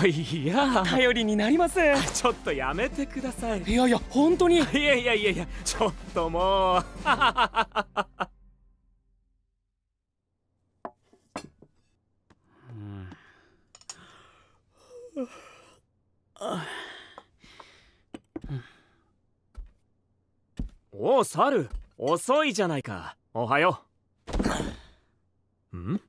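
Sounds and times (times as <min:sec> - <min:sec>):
men sighing and groaning: 0:04.5 - 0:08.3, 0:12.4 - 0:19.2, 0:25.7 - 0:26.0.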